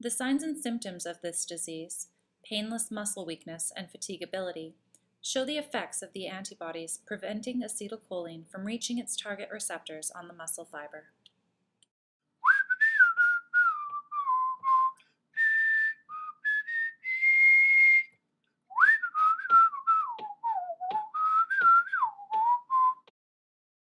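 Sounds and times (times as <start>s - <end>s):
person whistling a tune: 12.4s - 23.1s.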